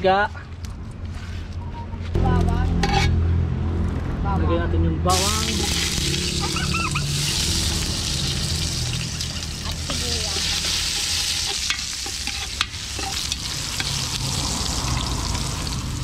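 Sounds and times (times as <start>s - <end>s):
garlic sizzling in hot oil: 5.1s - 16.0s
metal ladle clinking against pot: 10.4s - 13.9s.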